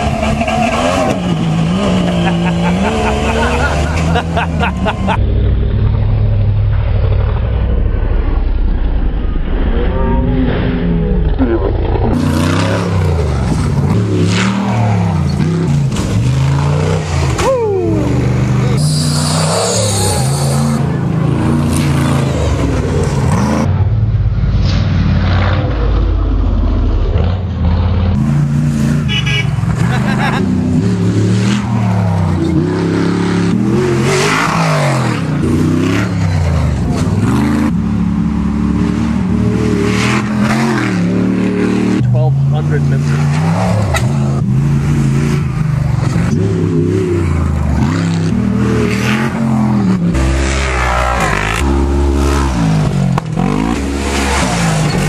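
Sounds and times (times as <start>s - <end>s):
buggy engines revving: 0.0s - 55.0s.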